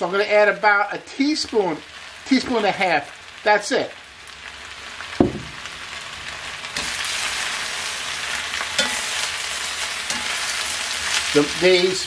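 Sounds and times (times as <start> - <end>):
spinach sizzling in a pan: 0.0 - 12.0
short knock: 5.2 - 5.6.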